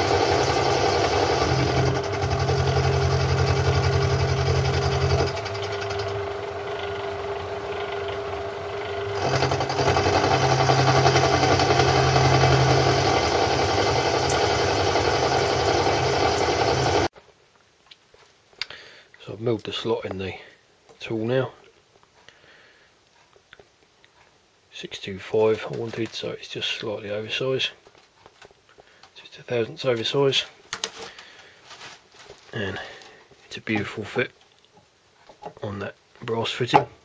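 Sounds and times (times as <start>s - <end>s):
lathe milling drone: 0.0s - 17.1s.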